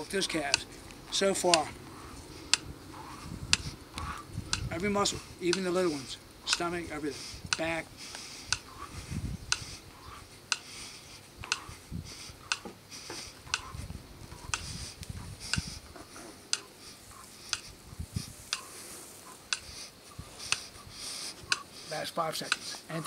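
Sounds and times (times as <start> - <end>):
timer ticking: 0.0 - 8.9, 9.5 - 10.8, 11.4 - 11.7, 12.4 - 12.7, 13.5 - 14.8, 15.4 - 15.8, 16.5 - 16.7, 17.4 - 17.7, 18.5 - 18.7, 19.4 - 20.7, 21.5 - 23.0.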